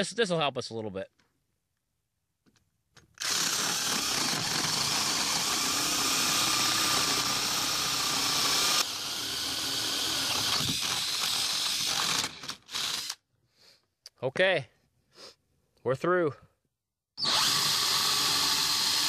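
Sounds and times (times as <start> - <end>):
power drill boring through wood: 3.2 - 13.2, 17.2 - 19.0.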